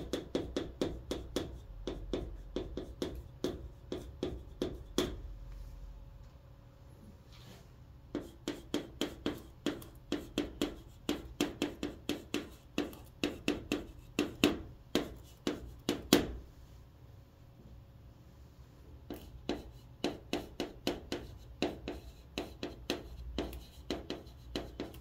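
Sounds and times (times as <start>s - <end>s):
chalk tapping and scraping: 0.0s - 5.6s, 8.1s - 16.4s, 19.0s - 25.0s.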